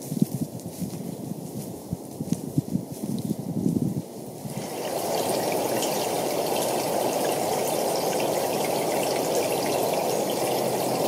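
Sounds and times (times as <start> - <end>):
flowing water rushing: 4.5 - 11.0.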